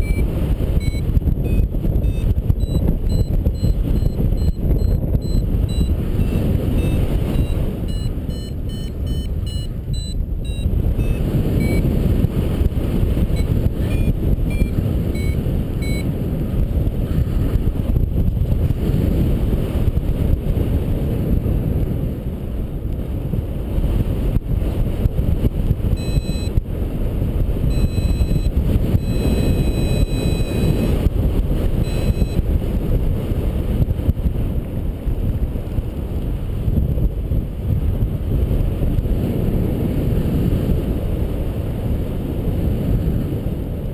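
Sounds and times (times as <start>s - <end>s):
variometer beeps: 0.0s - 12.0s, 13.2s - 16.1s, 25.9s - 26.6s, 27.6s - 31.1s, 31.7s - 32.5s
wind rush over microphone: 0.0s - 43.9s.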